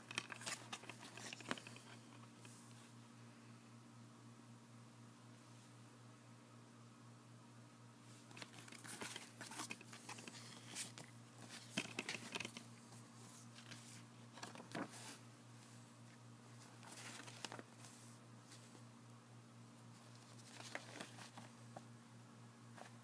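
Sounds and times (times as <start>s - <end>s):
low steady hum: 0.0s - 23.0s
paper rustling and crinkling: 0.1s - 2.5s, 8.3s - 15.2s, 16.6s - 18.8s, 20.0s - 21.6s.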